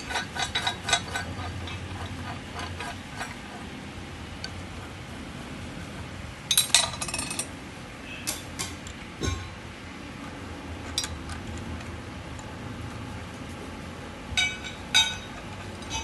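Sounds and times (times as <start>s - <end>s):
steel parts clinking and rattling: 0.0s - 3.5s, 6.5s - 7.5s, 10.8s - 11.9s, 14.4s - 16.0s.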